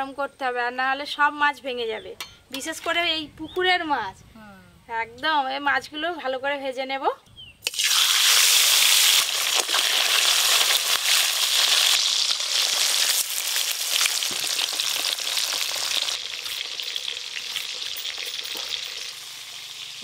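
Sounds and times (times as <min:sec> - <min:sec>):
fish sizzling in oil: 0:07.6 - 0:20.0
oil crackling: 0:07.6 - 0:20.0.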